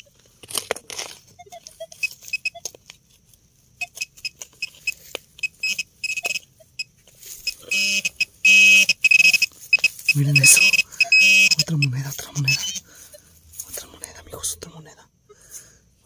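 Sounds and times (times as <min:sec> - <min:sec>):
digging clicks and scrapes: 0:00.0 - 0:03.0
metal detector short high beeps: 0:03.8 - 0:12.8.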